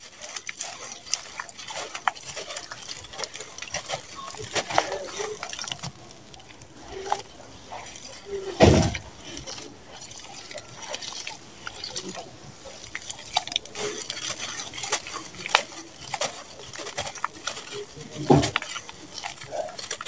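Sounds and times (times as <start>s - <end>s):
wet crackling and squelching: 0.0s - 20.0s
thump: 8.6s - 9.0s.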